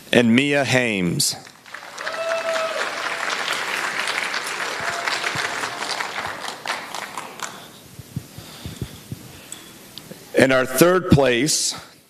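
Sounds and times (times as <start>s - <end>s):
audience applauding: 1.4s - 7.9s.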